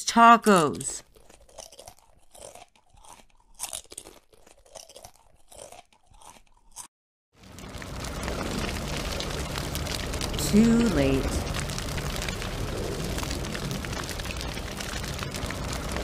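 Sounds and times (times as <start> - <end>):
taco shells crunching: 1.0 - 16.0
fire roaring: 7.4 - 16.0.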